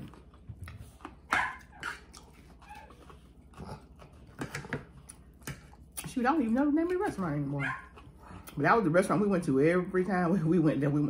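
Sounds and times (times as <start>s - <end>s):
dog barking: 1.3s - 1.8s, 7.6s - 8.0s.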